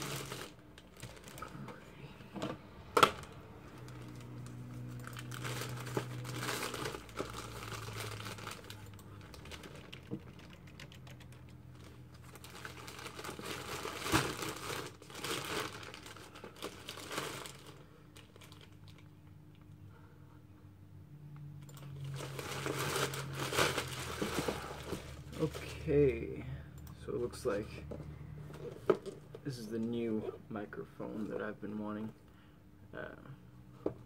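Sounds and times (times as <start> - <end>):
plastic packaging crinkling: 0.0 - 1.6, 3.2 - 19.2, 21.7 - 25.9.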